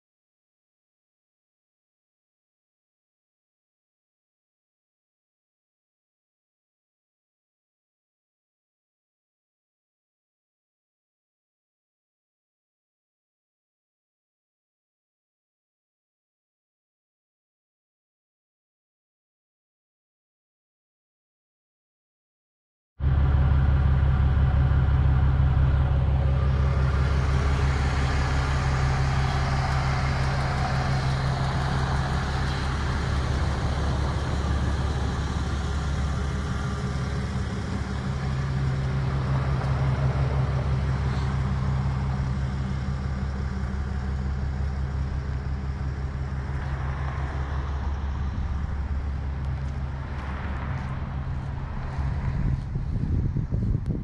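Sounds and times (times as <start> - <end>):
truck engine humming: 23.0 - 54.0.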